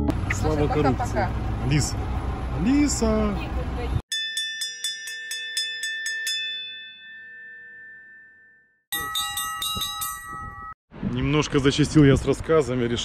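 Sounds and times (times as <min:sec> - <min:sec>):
bell-like chime strikes: 0:04.1 - 0:10.8.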